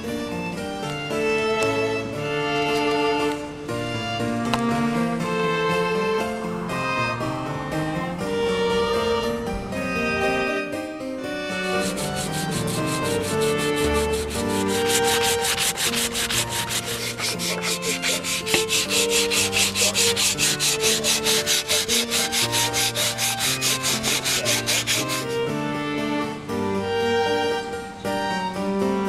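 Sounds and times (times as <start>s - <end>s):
instrumental music: 0.0s - 29.0s
sandpaper rubbing on wood: 11.6s - 25.4s.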